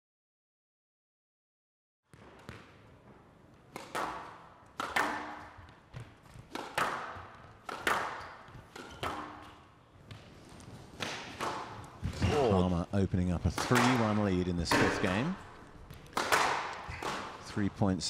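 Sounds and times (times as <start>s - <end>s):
squash ball strikes: 2.1s - 10.2s, 10.9s - 12.6s, 13.4s - 17.5s.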